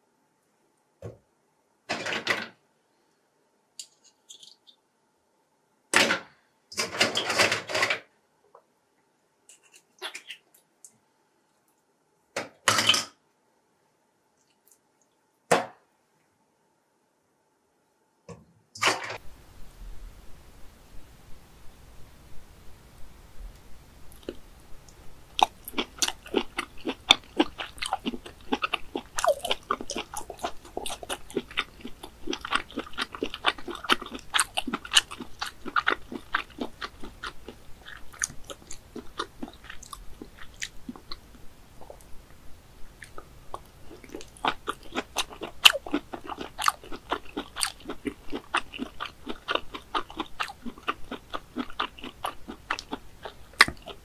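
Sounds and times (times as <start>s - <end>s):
mouth chewing with clicks and smacks: 24.1s - 42.1s, 42.9s - 54.0s.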